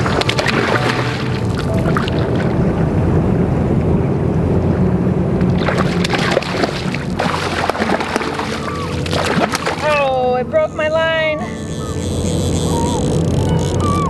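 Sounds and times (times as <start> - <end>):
fish splashing at surface: 0.0 - 2.5, 5.5 - 10.0
low rumble: 0.0 - 14.0.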